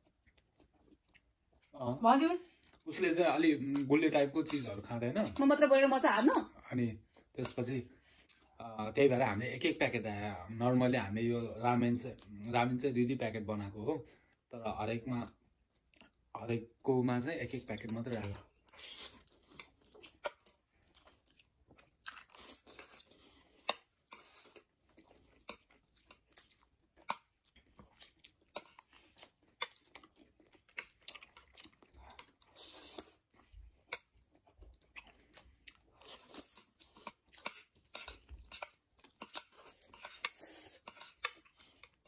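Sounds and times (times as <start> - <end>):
chewing: 0.0 - 3.0, 17.8 - 42.0.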